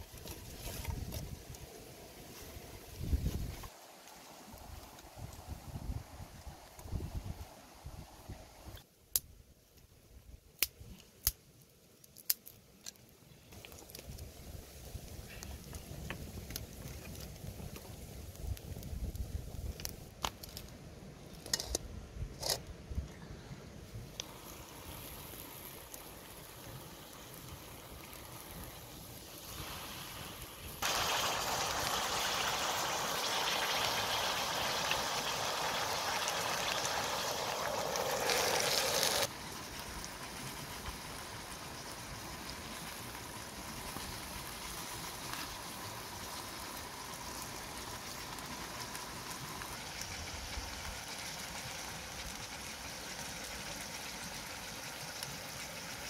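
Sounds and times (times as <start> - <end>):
steady hiss with faint ticks: 0.0 - 7.4, 10.6 - 21.8, 23.9 - 31.0, 39.2 - 56.0
water pouring into metal wok: 30.8 - 39.3.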